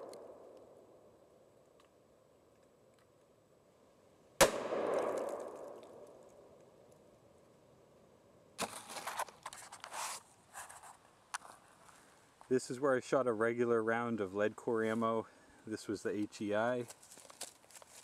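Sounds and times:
bullet striking steel target: 0:04.4 - 0:06.2
camera handling rustling: 0:08.6 - 0:12.0, 0:16.9 - 0:18.0.

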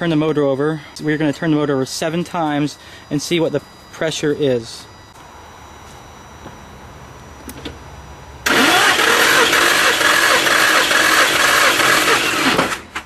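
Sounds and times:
starter motor cranking engine: 0:08.4 - 0:13.0.

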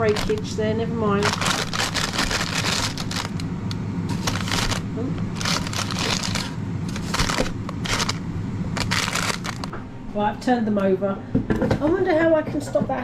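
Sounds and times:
paper crinkling and rustling: 0:00.0 - 0:00.5, 0:01.2 - 0:03.4, 0:04.1 - 0:08.2, 0:08.8 - 0:09.7
steady low hum: 0:00.0 - 0:13.0.

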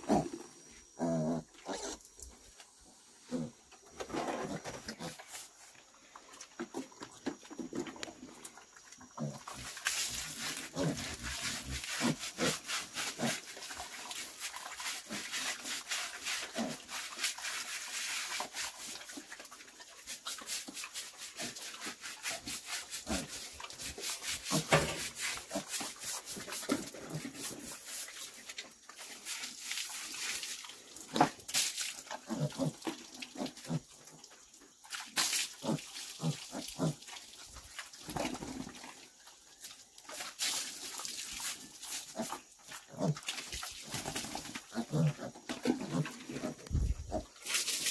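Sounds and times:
pig grunting: 0:00.0 - 0:00.4, 0:01.0 - 0:02.0, 0:03.2 - 0:03.6, 0:10.6 - 0:13.4, 0:32.2 - 0:32.8, 0:42.2 - 0:43.3, 0:44.7 - 0:47.4
scrub brush rubbing wet hair: 0:09.6 - 0:19.1, 0:20.0 - 0:30.7.

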